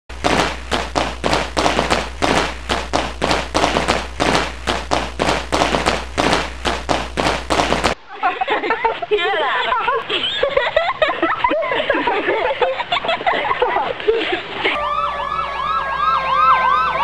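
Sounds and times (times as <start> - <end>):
rapid tapping: 0.1 - 8.0
steady low hum: 0.1 - 16.0.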